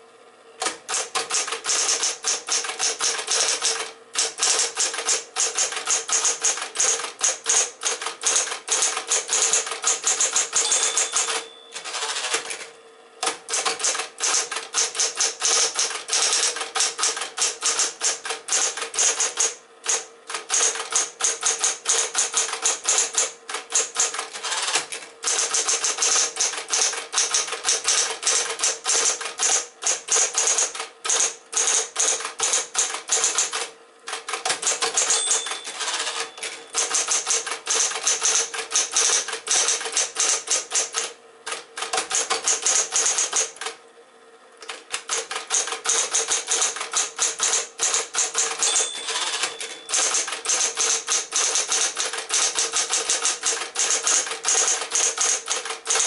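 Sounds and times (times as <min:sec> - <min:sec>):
typewriter motor hum: 0:00.6 - 0:43.8, 0:44.6 - 0:56.0
typewriter type-bar strikes: 0:00.6 - 0:43.8, 0:44.6 - 0:56.0
typewriter bell ring: 0:00.9 - 0:12.5, 0:34.6 - 0:40.4, 0:45.1 - 0:56.0.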